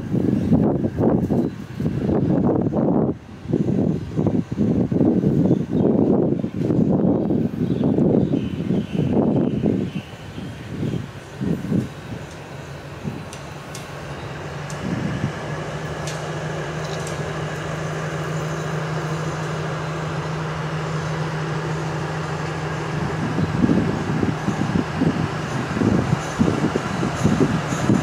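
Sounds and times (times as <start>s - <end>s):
diesel locomotive engine running: 0.0s - 28.0s.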